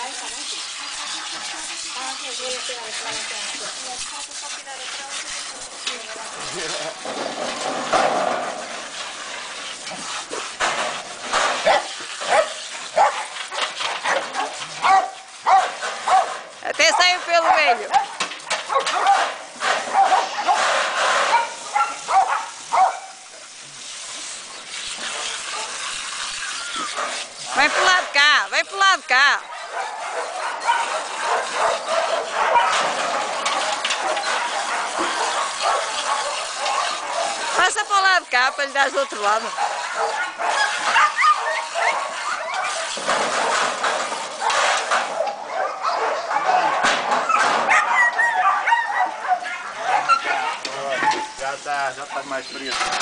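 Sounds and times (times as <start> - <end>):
hose water hissing and splashing: 0.0 - 53.0
small dog barking and yipping: 11.6 - 13.3, 14.0 - 16.3, 18.7 - 19.3, 19.9 - 20.6, 21.3 - 23.2, 29.4 - 32.9, 39.5 - 43.0, 44.4 - 51.3.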